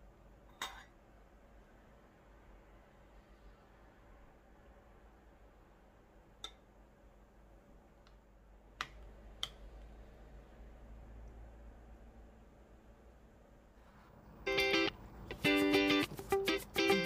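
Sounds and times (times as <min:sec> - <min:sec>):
tableware clicking: 0:00.5 - 0:00.9.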